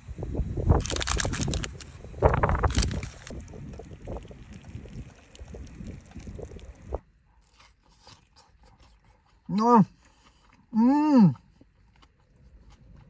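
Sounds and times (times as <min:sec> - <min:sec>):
wind buffeting microphone: 0:00.0 - 0:07.0
tea pouring into a metal tin: 0:02.7 - 0:07.0.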